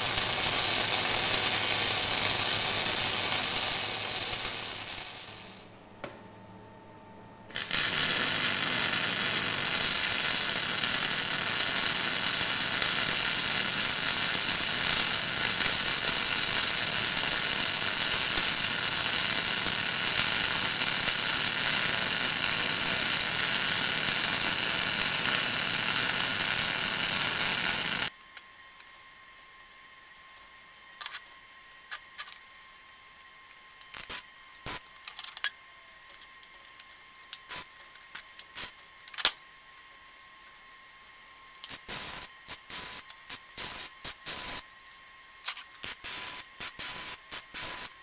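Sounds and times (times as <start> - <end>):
welding arc crackling hiss: 0.0 - 5.8, 7.5 - 28.1, 33.9 - 34.8, 37.4 - 37.7, 38.5 - 38.8, 41.6 - 44.6, 45.5 - 48.0.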